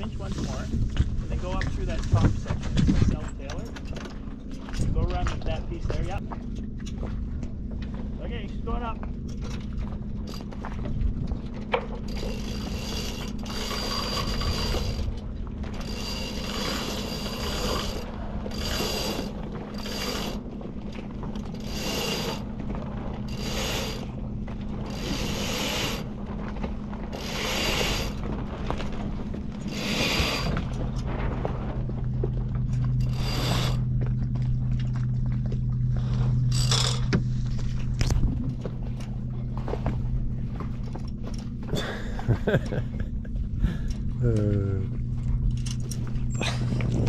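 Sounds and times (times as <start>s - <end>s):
steady low hum: 0.0s - 47.0s
winch ratcheting: 9.2s - 26.1s, 27.1s - 31.2s, 32.6s - 33.9s, 36.5s - 38.3s.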